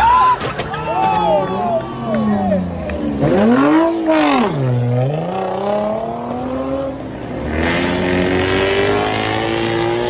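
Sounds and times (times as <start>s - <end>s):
car engine revving: 2.2s - 10.0s.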